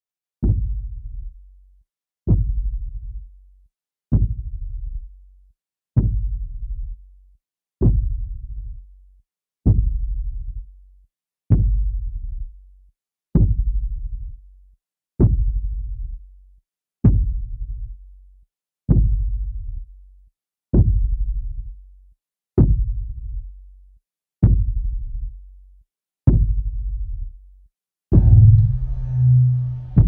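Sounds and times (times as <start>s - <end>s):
deep booming thuds: 28.1s - 30.0s.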